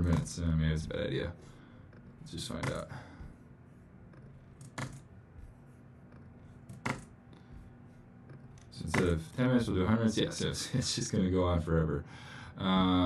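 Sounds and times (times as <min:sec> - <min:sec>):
faint low hum: 0:00.0 - 0:13.0
computer mouse clicks: 0:04.1 - 0:05.1, 0:06.1 - 0:07.2.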